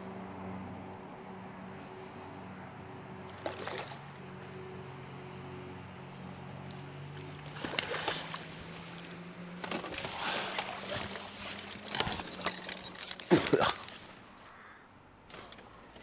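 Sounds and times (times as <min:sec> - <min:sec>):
water splashing and sloshing: 0:03.0 - 0:14.5.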